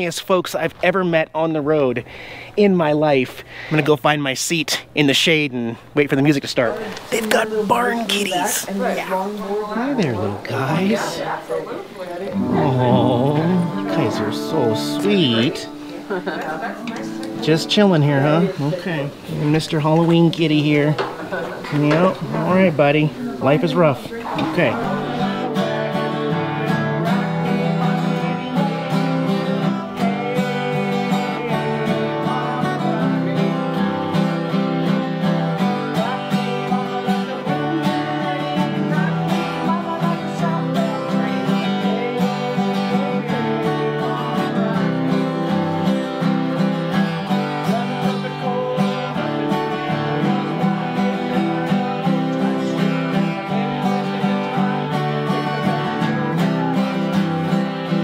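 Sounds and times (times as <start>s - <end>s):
acoustic guitar strumming: 6.8s - 11.4s, 12.3s - 58.0s
electric guitar strumming: 12.3s - 21.0s, 21.7s - 58.0s.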